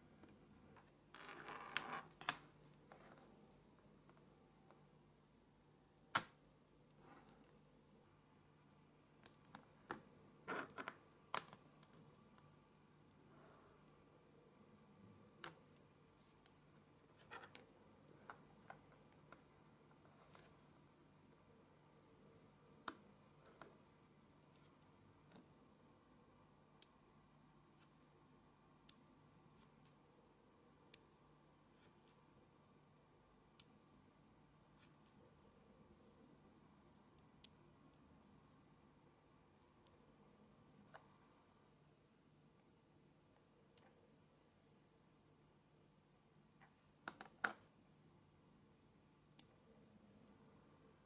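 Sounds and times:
magnet balls snapping together: 6.1 - 6.4.

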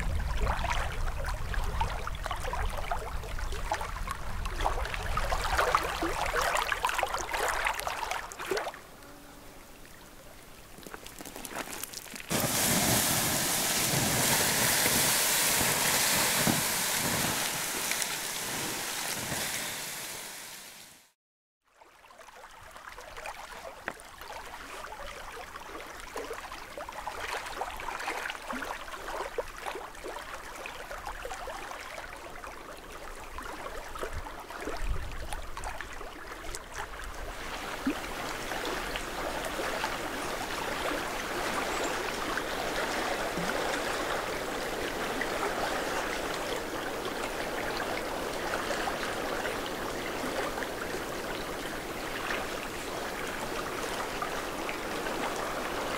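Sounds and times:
water splashes: 0.0 - 8.9, 9.8 - 20.9, 22.1 - 55.9.

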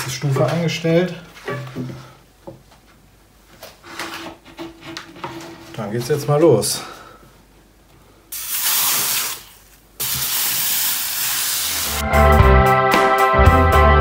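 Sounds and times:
steam hissing from iron: 8.4 - 12.0
music with strong bass: 11.9 - 14.0.

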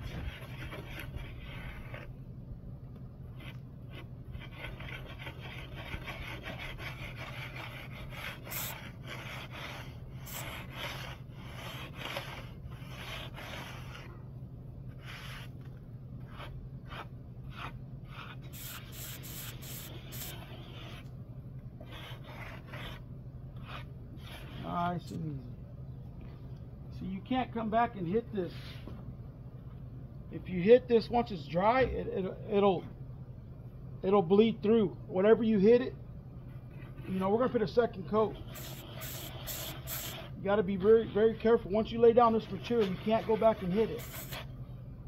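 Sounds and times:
plastic float rubbing wet stucco: 3.4 - 14.1, 38.3 - 40.4, 42.6 - 44.5.

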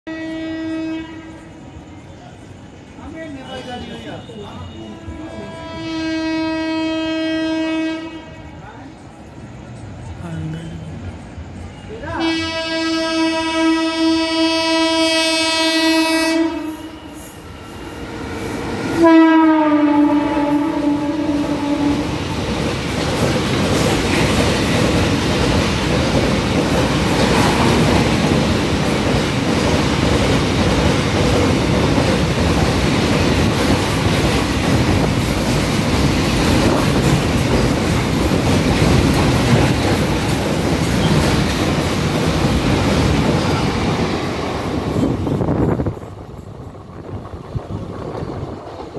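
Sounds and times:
locomotive horn blasts: 0.1 - 1.6, 4.2 - 8.6, 12.2 - 17.2, 19.0 - 22.2
freight wagons rolling on rails: 22.1 - 48.9.

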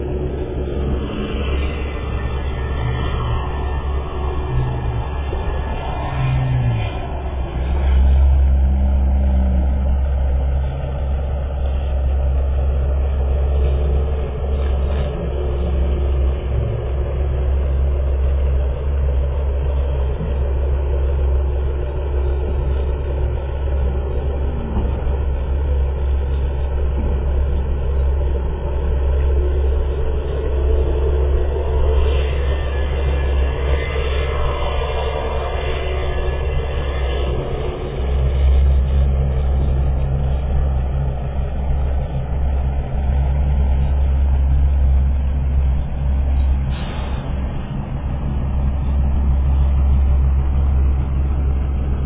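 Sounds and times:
diesel machinery rumbling: 0.0 - 52.0.

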